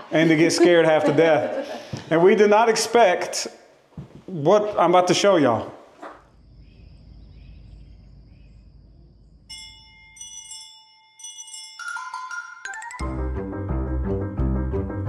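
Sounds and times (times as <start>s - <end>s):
faint low rumble: 6.3s - 9.5s
bell-like chime notes: 9.5s - 13.1s
high tone: 9.5s - 13.1s.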